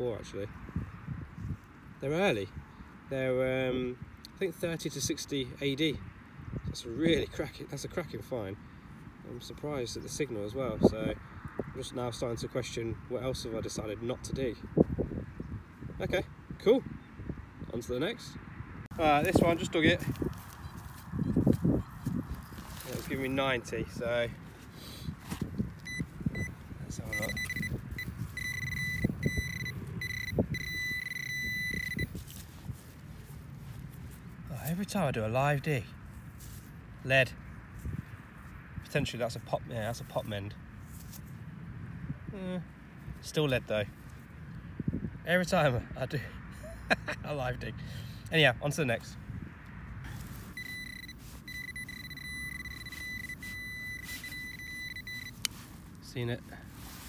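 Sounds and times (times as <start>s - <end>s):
soil crunching and scraping: 18.9s - 28.6s, 29.4s - 35.2s, 36.0s - 37.1s, 39.9s - 41.4s, 50.0s - 57.0s
pinpointer beeping: 25.8s - 32.2s, 50.5s - 55.5s.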